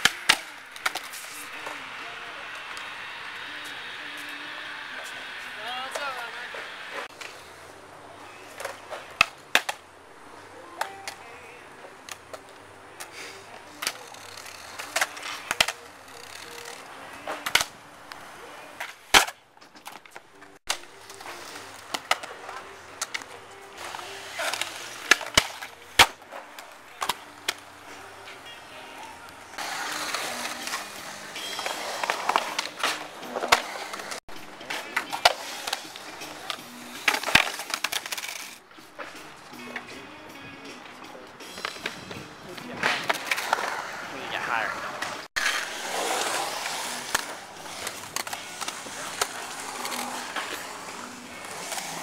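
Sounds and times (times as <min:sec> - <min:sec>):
skateboard clacks: 0:00.0 - 0:07.4, 0:08.4 - 0:09.9, 0:10.6 - 0:44.1, 0:44.7 - 0:52.0
skateboard wheels rolling on concrete: 0:00.0 - 0:52.0.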